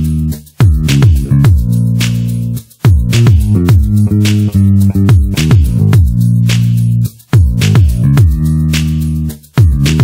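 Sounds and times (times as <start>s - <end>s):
electronic music: 0.0s - 10.0s
sharp clap-like hits: 2.0s - 2.4s, 3.0s - 6.8s, 8.7s - 9.1s, 9.7s - 10.0s.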